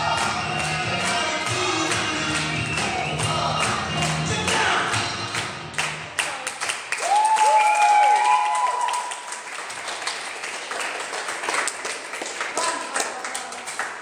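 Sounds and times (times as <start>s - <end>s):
small group clapping: 0.0s - 14.0s
high cheering cries: 7.0s - 9.2s.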